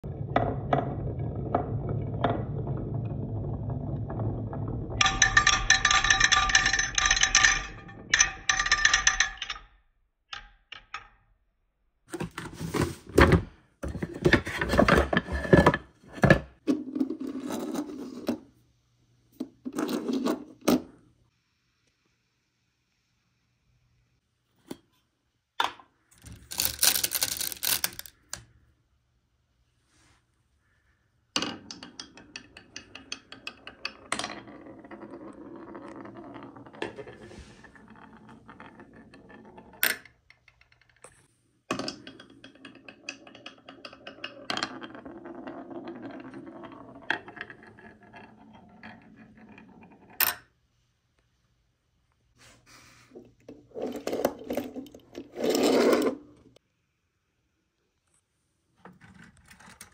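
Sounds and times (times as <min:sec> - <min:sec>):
marble rolling down wooden slope: 0:00.0 - 0:09.6, 0:26.1 - 0:28.4, 0:31.4 - 0:50.6, 0:53.3 - 0:56.6
marbles clinking in glass jar: 0:05.0 - 0:09.6, 0:26.2 - 0:28.4
marble dropping into metal toy: 0:25.6 - 0:28.4.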